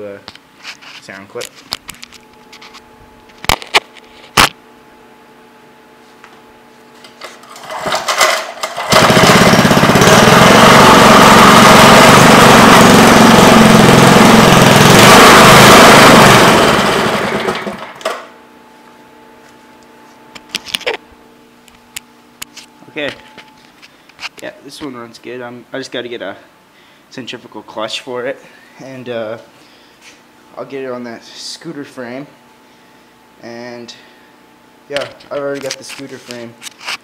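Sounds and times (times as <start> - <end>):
small engine running: 7.5 - 18.2.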